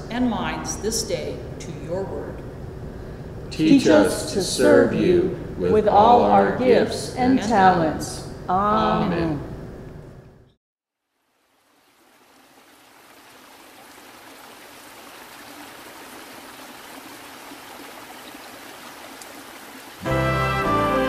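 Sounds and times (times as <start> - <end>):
mountain stream running: 11.0 - 21.0
loud music: 20.0 - 21.0.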